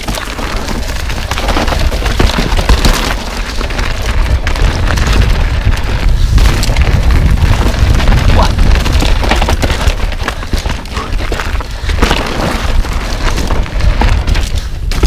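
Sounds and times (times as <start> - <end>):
bike rattling over bumps: 0.0 - 15.0
tyres on loose dirt: 0.0 - 15.0
wind buffeting microphone: 3.8 - 15.0.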